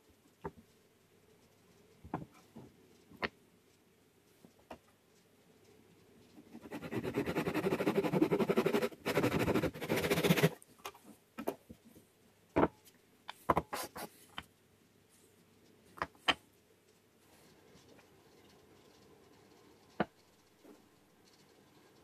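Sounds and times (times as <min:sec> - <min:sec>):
hand saw cutting wood: 0:06.8 - 0:10.5.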